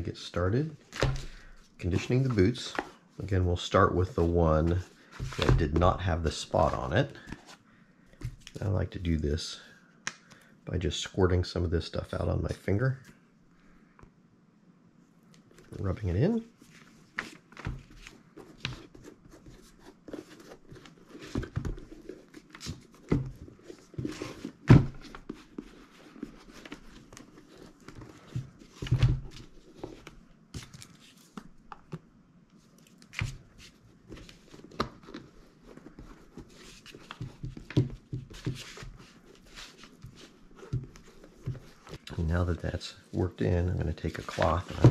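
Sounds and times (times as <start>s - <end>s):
paper rustling and crinkling: 15.7s - 31.6s, 43.8s - 44.9s.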